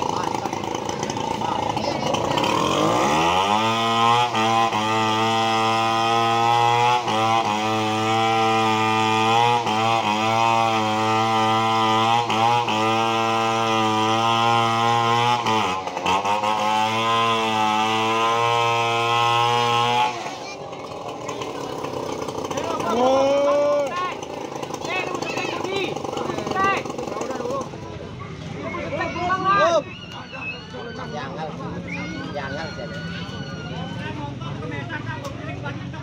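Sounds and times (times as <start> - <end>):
chainsaw cutting wood: 0.0 - 27.8.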